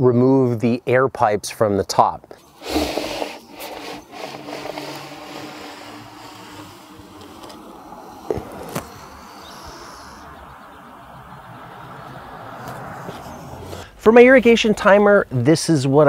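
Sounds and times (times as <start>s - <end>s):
outdoor background noise: 0.0s - 16.0s
pipe scraping out of compost: 2.4s - 7.6s.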